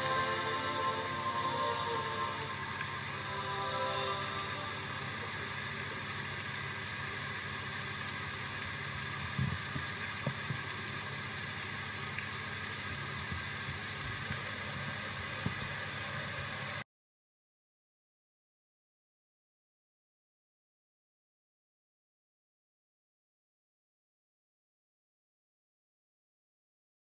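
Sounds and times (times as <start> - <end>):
rain hiss: 0.0 - 16.8.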